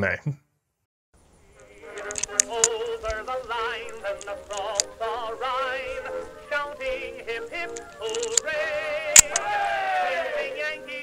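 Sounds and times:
music with wavering melody: 1.5 - 11.0
cartridges clicking into revolver: 1.9 - 5.0, 7.7 - 8.4, 9.2 - 9.4.

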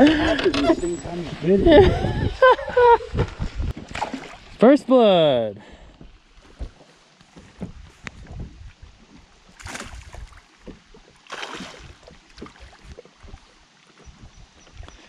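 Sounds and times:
light knocks and bumps: 6.0 - 9.2
fish splashing at water surface: 9.6 - 10.5, 11.2 - 12.9.

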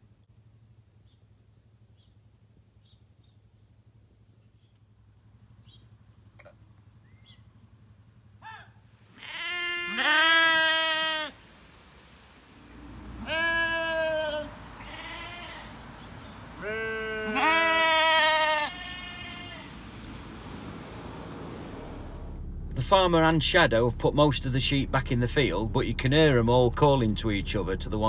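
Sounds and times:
sheep bleating: 9.1 - 11.4, 13.0 - 19.8.

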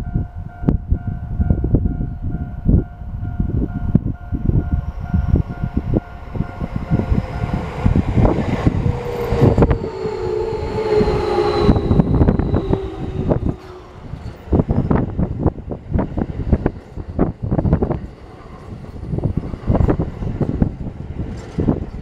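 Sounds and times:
train held tone: 0.0 - 15.5
electric train rumbling: 0.0 - 22.0
wind buffeting microphone: 0.0 - 22.0.

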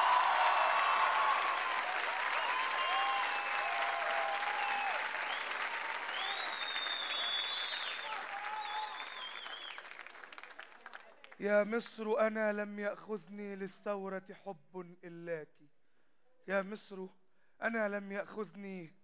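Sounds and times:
audience shouting: 0.0 - 5.1
audience applauding: 0.0 - 11.4.

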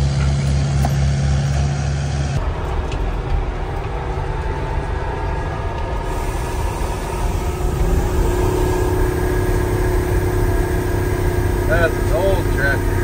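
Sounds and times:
truck engine running: 0.0 - 13.0
tyres on gravel road: 0.0 - 13.0
steady hum: 2.2 - 13.0.

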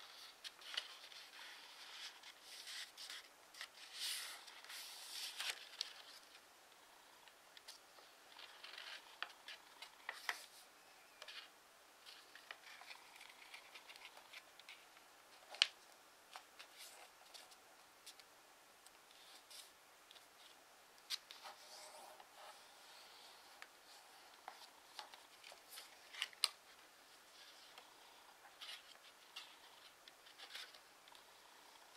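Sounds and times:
paper rustling and crinkling: 0.0 - 6.4, 19.1 - 31.2.

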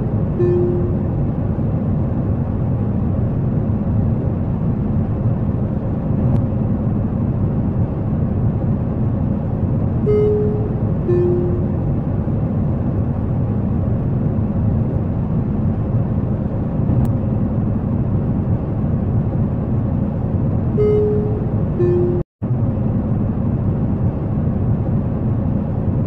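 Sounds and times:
jet airliner cabin drone: 0.0 - 26.0
two-note cabin chime: 0.4 - 1.2, 10.0 - 11.9, 20.8 - 22.2.

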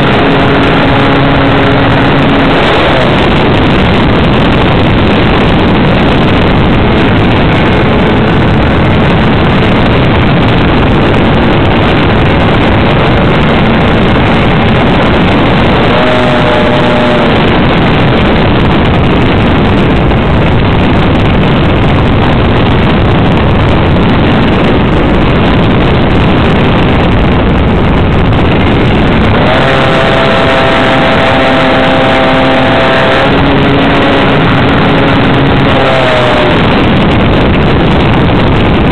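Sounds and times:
model plane engine and airflow rush: 0.0 - 38.9
steady engine hum: 0.0 - 38.9.

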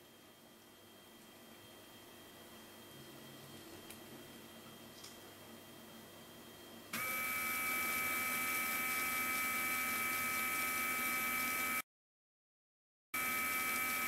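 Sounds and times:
electric motor whining: 7.0 - 11.8, 13.2 - 14.0.

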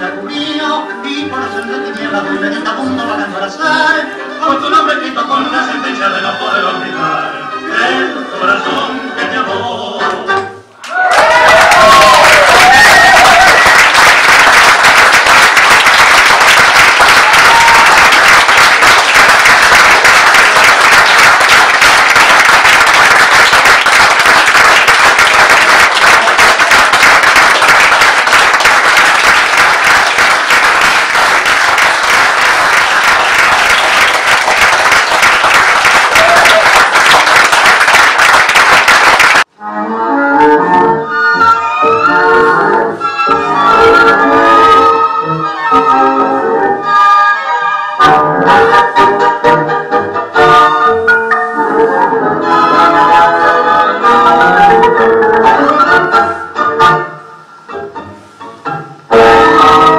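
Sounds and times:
music playing: 0.0 - 10.8, 15.9 - 59.9
audience applauding: 10.8 - 39.5.

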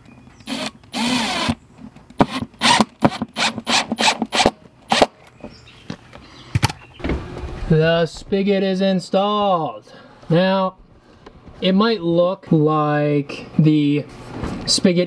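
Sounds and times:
cordless driver motor: 0.4 - 1.6, 2.2 - 5.1.

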